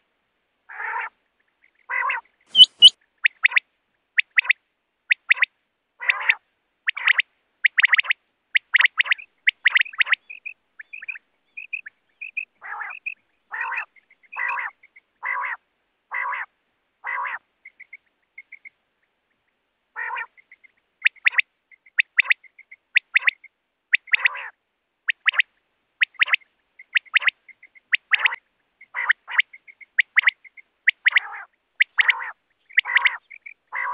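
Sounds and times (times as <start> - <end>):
quail calling: 0.7 - 1.2, 1.8 - 3.6, 4.2 - 18.7, 20.0 - 33.9
small high chirps: 2.5 - 3.6.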